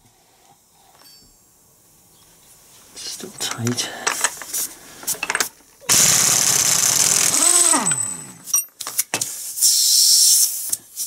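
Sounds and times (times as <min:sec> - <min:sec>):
pneumatic impact wrench hammering: 0:05.1 - 0:09.3
air motor winding down whine: 0:05.9 - 0:08.5.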